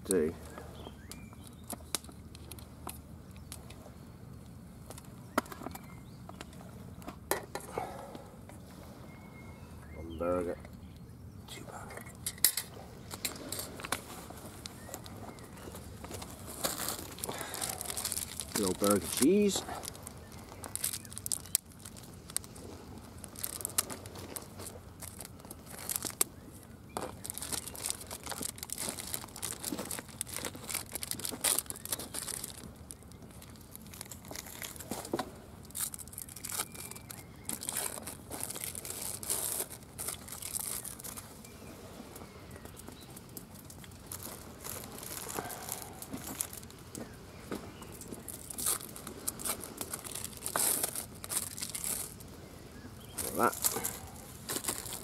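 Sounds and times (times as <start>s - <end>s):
plastic packaging crinkling: 14.4s - 41.4s, 42.7s - 47.2s, 47.8s - 52.3s, 53.0s - 55.0s.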